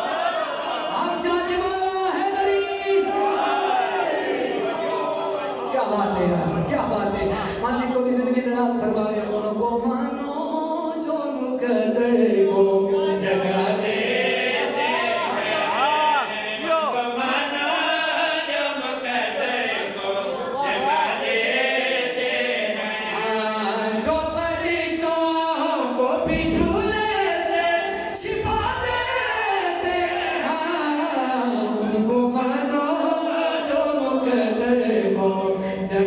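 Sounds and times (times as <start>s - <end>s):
men singing together unaccompanied: 12.9s - 36.0s.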